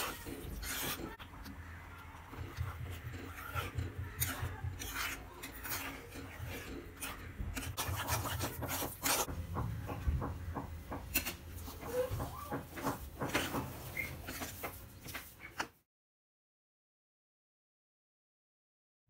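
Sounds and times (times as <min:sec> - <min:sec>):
steel spoon scraping a pan: 0:00.0 - 0:01.2, 0:02.3 - 0:09.3.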